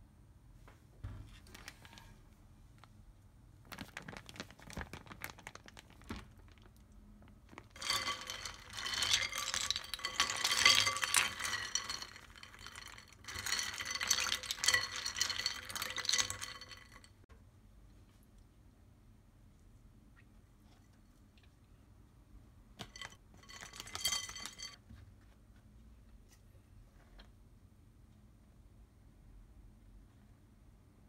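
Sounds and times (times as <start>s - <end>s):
plastic zip bag crinkling: 3.6s - 17.1s
ice cubes clinking: 7.5s - 17.2s, 22.8s - 24.8s.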